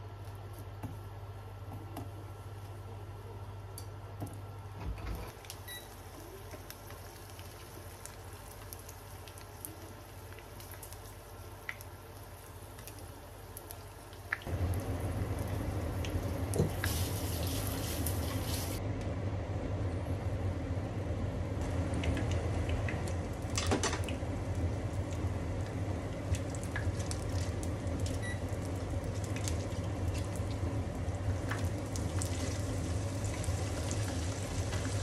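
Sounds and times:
garlic sizzling in oil: 5.4s - 18.8s, 24.2s - 35.0s
steady low hum: 14.5s - 35.0s.

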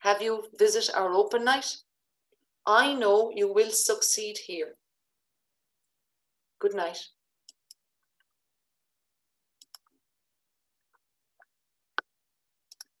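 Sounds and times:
computer clicks and knocks: 9.6s - 9.9s.

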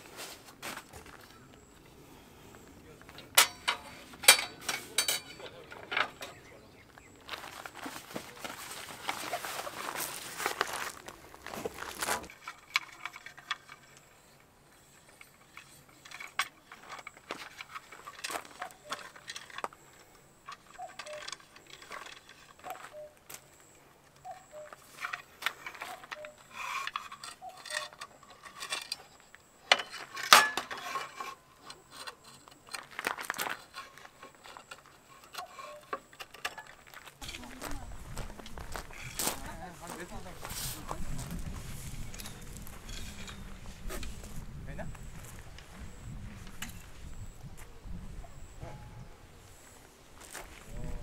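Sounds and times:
objects clicking and rattling: 12.1s - 23.0s, 24.2s - 37.7s.

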